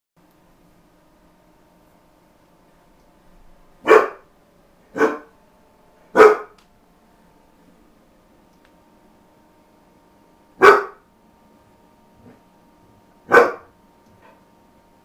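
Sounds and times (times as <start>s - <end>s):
dog barking: 3.8s - 4.3s, 5.0s - 5.3s, 6.2s - 6.6s, 10.6s - 11.0s, 13.3s - 14.4s.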